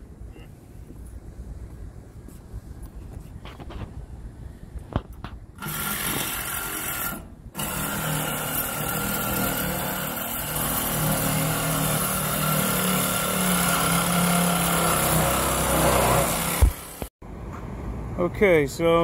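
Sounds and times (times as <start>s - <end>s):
cordless drill running: 5.6s - 17.1s.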